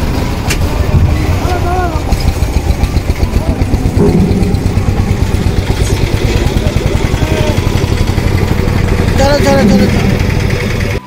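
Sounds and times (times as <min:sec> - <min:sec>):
ferry engine throbbing: 0:00.0 - 0:11.0.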